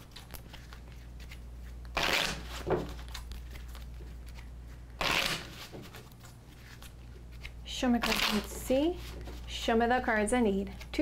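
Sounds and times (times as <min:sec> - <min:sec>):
cards being shuffled: 0:00.0 - 0:09.5.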